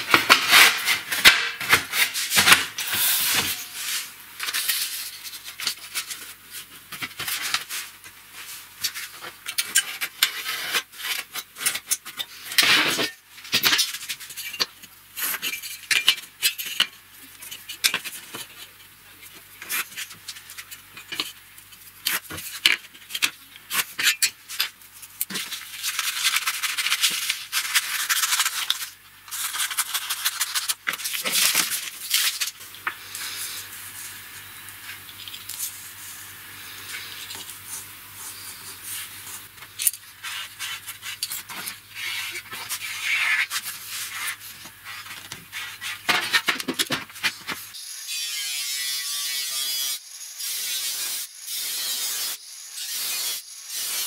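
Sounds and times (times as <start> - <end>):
steel sheet rubbed by hand: 2.0 - 5.3, 41.9 - 46.1
scissors cutting paper: 25.3 - 32.5.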